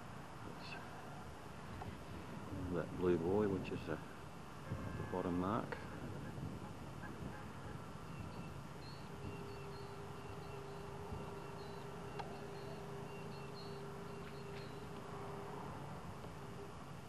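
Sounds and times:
faint steady tone: 0.0 - 17.0
outdoor hum and hiss: 0.0 - 17.0
small high chirps: 8.0 - 15.1.

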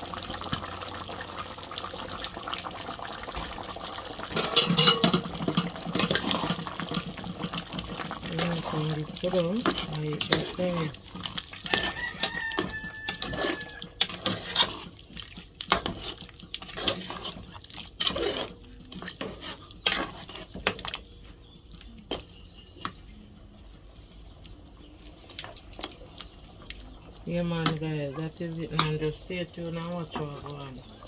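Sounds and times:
metal utensils clattering in pot: 4.2 - 14.9, 15.7 - 21.0.

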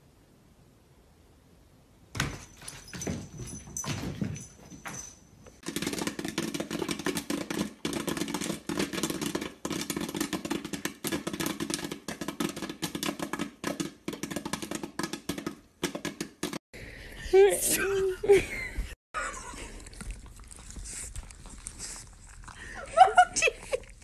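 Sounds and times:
popcorn kernels popping: 5.6 - 16.6.

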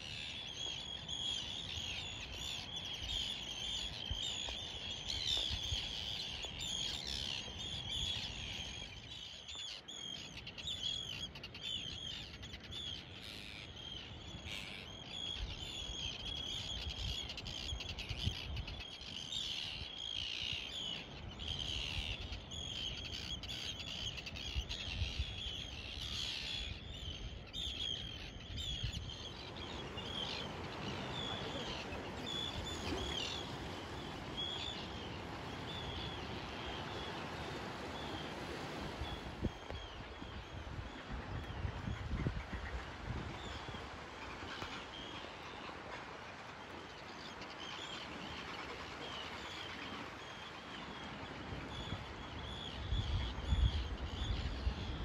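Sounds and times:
seabirds calling: 0.0 - 55.0
wind rumbling on microphone: 24.4 - 44.2, 51.4 - 55.0.

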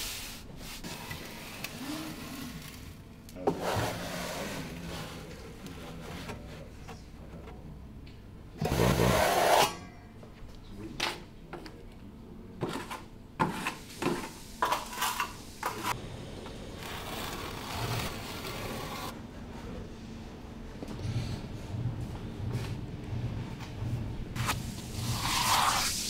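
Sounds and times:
trowel scraping and spreading: 16.8 - 19.1, 24.4 - 26.0.

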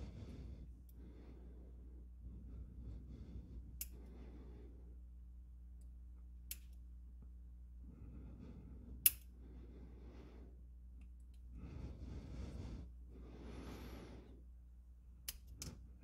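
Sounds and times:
soft hissing breaths: 0.0 - 5.1, 7.8 - 10.8, 11.4 - 14.6
tweezers clicking on metal: 6.5 - 6.8, 9.0 - 9.3.

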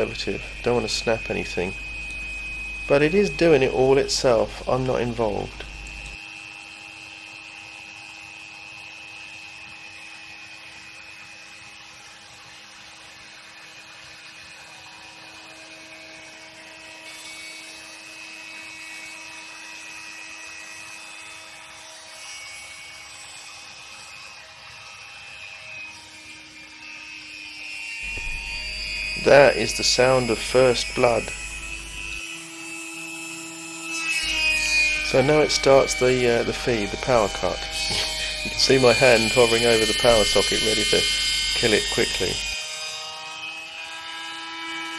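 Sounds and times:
rotary tool whining: 0.0 - 44.9
bit cutting into plastic: 35.0 - 42.5.

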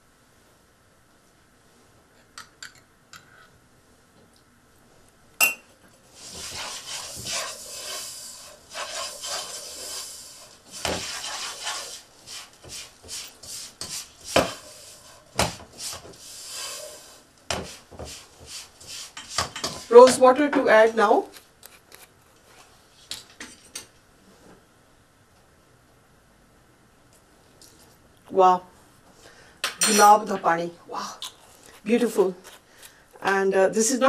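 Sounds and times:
wooden spatula scraping a pot: 6.1 - 21.1.

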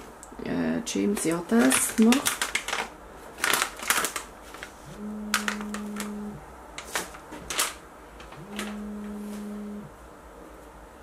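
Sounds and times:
low steady buzz: 4.8 - 11.0.

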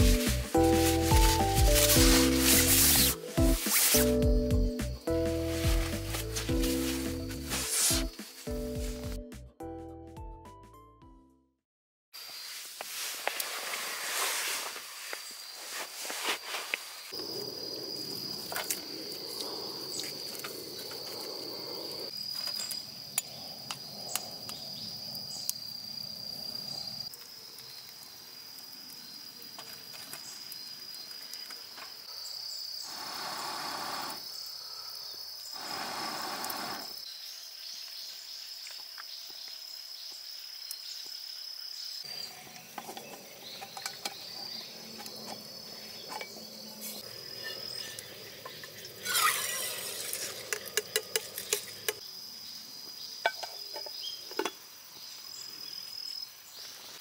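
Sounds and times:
insects trilling: 12.2 - 57.0
metallic clinks of camp cooker: 42.6 - 45.1.

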